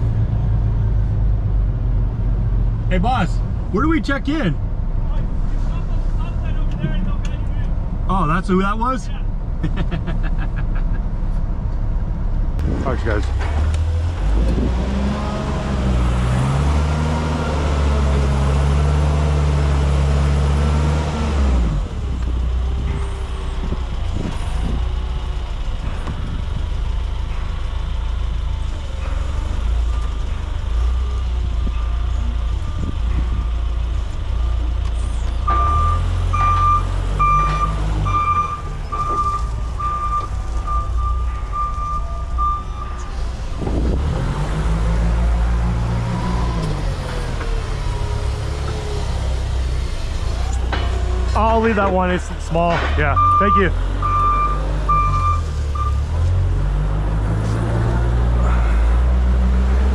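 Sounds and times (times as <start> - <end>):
forklift engine revving: 12.5 - 59.9
reverse alarm beeps: 35.5 - 43.1, 53.2 - 56.1.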